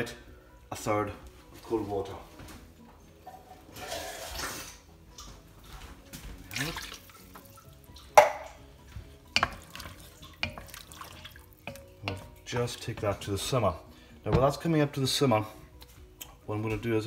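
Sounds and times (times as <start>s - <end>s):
liquid sloshing: 6.4s - 8.6s, 9.3s - 12.5s
sharp knocks on pot: 8.2s - 8.6s
wooden spoon stirring sauce: 8.8s - 15.2s.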